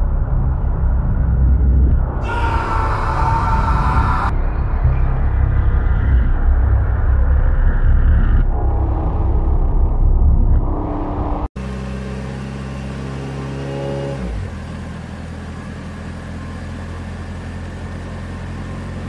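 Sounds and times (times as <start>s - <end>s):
loud low rumble: 0.0s - 11.6s.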